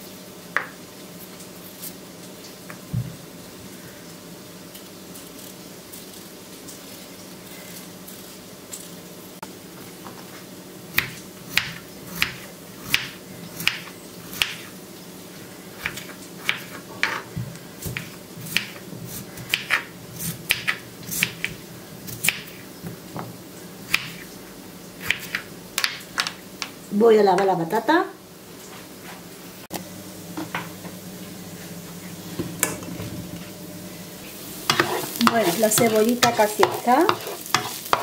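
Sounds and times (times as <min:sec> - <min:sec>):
knife chopping on wooden board: 0:11.0 - 0:14.6, 0:19.4 - 0:21.6, 0:34.7 - 0:38.0.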